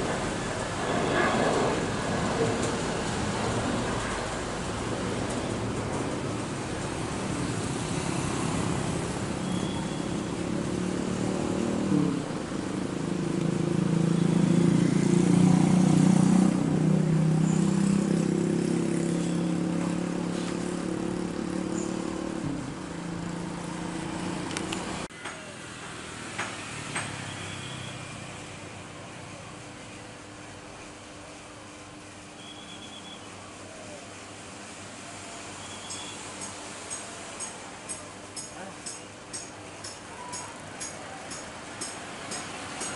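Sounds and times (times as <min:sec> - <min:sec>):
jet engines drone: 0:00.0 - 0:19.1.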